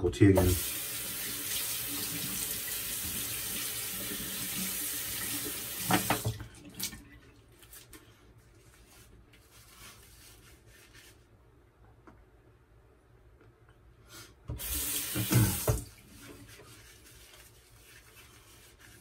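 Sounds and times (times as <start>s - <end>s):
tap water running into sink: 0.4s - 7.0s, 14.5s - 16.4s
hands rubbing shaving lather: 8.6s - 11.2s, 16.2s - 19.0s.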